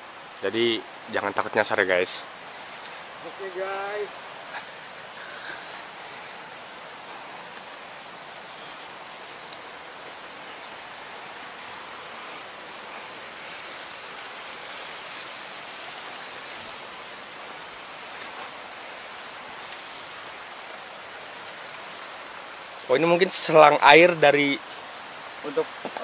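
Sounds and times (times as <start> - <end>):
stream water flowing: 0.0 - 26.0
footsteps rustling through undergrowth: 3.6 - 20.1.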